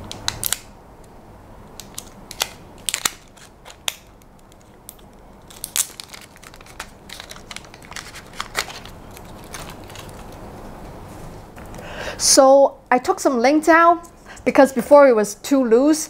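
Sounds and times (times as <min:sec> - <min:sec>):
plastic crinkling: 0:01.8 - 0:10.6.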